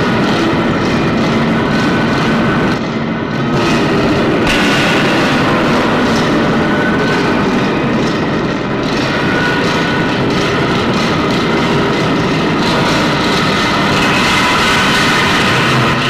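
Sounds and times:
loud mechanical rumble: 0.0 - 16.0.

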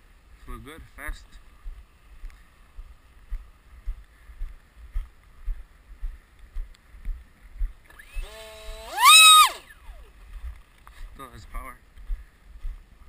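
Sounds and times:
electric motor propeller whine: 7.9 - 10.1.

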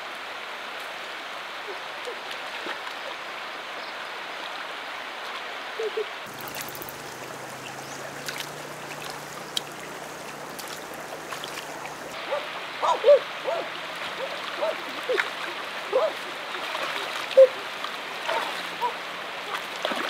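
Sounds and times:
river water running over stones: 0.0 - 20.0
water splashing from wading: 6.2 - 20.0.

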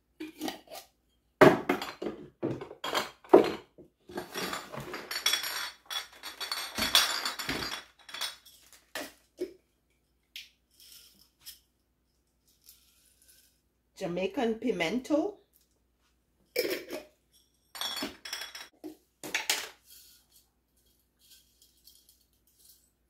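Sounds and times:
basket of jars rattling: 1.6 - 9.2
glass jars clinking: 1.6 - 9.2, 16.5 - 19.8.

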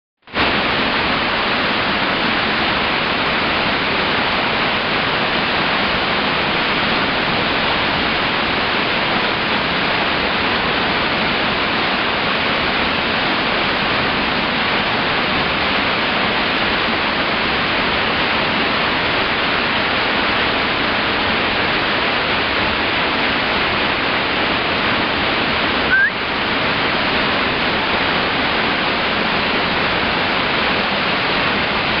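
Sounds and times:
waterfall rushing hiss: 0.4 - 32.0
rising squeak: 25.9 - 26.2.

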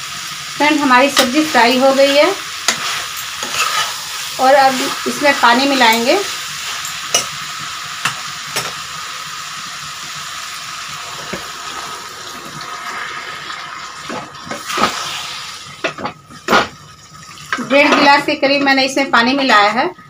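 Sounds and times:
curry sizzling in a pan: 0.0 - 19.5
spatula knocking and scraping pan: 2.7 - 4.0, 17.6 - 18.8.

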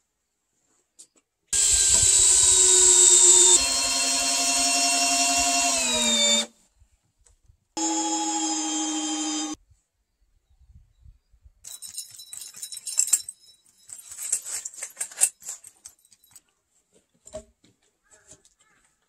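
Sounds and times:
tool belt hardware jangling: 11.6 - 16.5.

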